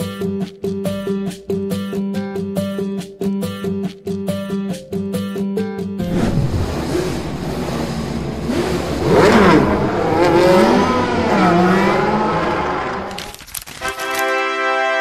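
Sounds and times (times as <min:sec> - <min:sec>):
race car engine revving: 0:06.0 - 0:13.3.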